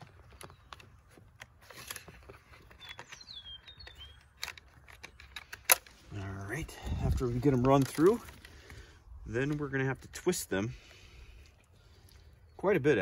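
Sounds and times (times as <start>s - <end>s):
bird chirping: 0.0s - 1.3s, 2.0s - 5.6s.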